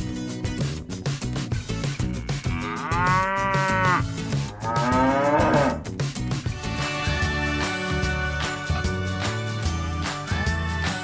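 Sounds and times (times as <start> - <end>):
cow mooing: 2.2 - 5.9.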